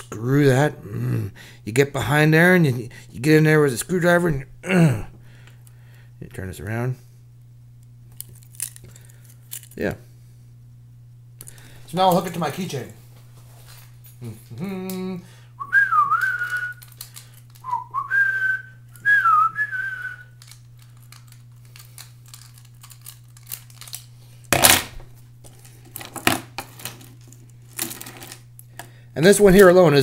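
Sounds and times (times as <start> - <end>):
man humming: 0.0 - 1.6, 4.6 - 5.2, 14.2 - 16.8
man whistling a tune: 15.6 - 16.9, 17.6 - 20.4.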